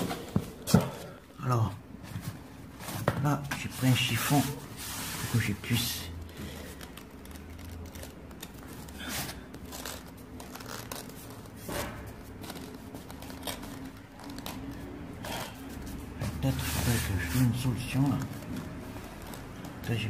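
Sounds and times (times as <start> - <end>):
cloth wiping mortar on tiles: 3.7 - 5.7, 15.8 - 17.8.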